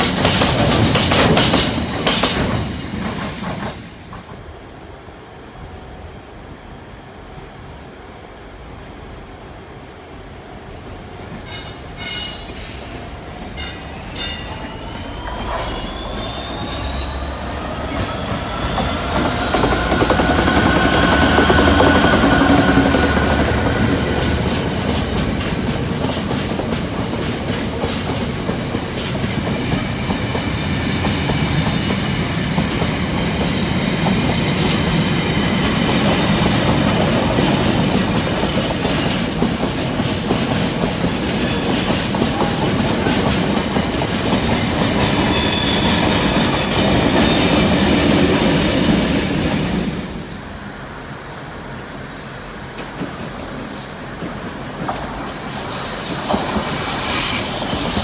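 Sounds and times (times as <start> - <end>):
high-pitched wheel squeal: 13.6 - 23.1, 45.0 - 47.8, 55.2 - 58.0.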